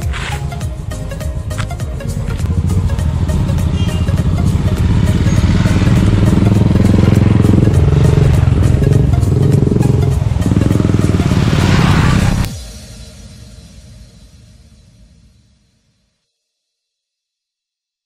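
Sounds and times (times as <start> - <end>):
motorcycles riding past: 2.2 - 12.5.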